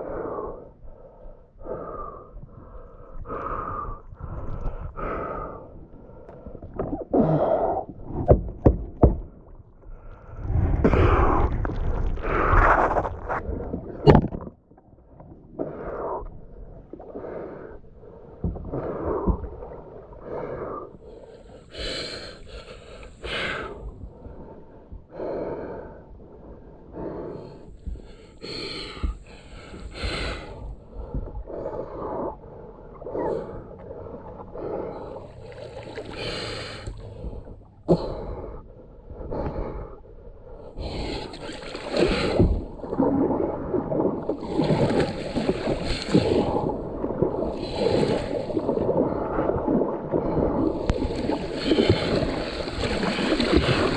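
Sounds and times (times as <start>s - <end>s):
person breathing hard: 0.0s - 7.9s, 20.2s - 42.7s, 50.1s - 53.9s
paddle splashing in water: 10.5s - 14.6s, 40.8s - 53.9s.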